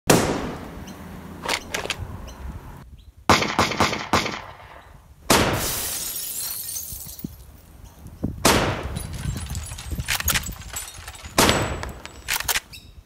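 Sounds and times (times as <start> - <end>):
gunshots with echo: 0.1 - 0.8, 3.3 - 5.7, 11.4 - 12.0.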